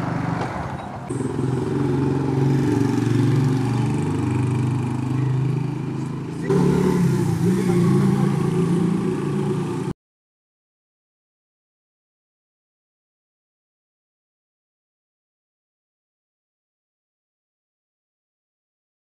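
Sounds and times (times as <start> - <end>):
motorcycle engine idling: 0.8 - 9.8.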